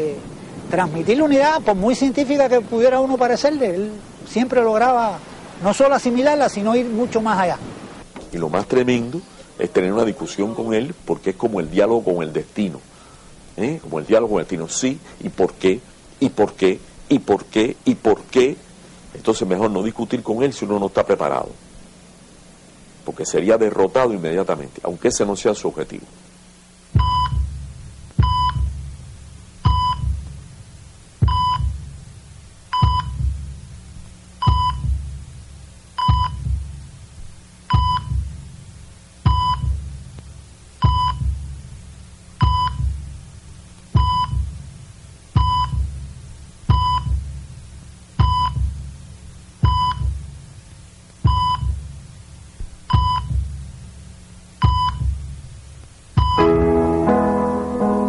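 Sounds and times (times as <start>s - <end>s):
heart monitor beeping: 27.0s - 27.6s, 28.2s - 28.8s, 29.6s - 30.3s, 31.2s - 31.8s, 32.7s - 33.4s, 34.4s - 35.1s, 36.0s - 36.7s, 37.7s - 38.4s, 39.2s - 39.9s, 40.8s - 41.5s, 42.4s - 43.0s, 44.0s - 44.6s, 45.4s - 46.0s, 46.7s - 47.3s, 48.2s - 48.8s, 49.6s - 50.3s, 51.2s - 51.9s, 52.9s - 53.5s, 54.6s - 55.3s, 56.2s - 56.5s.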